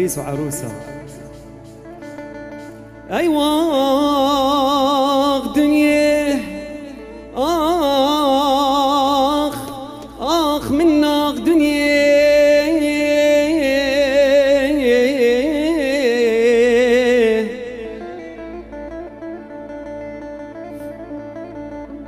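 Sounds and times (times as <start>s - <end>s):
man singing into a microphone: 3.1s - 19.4s.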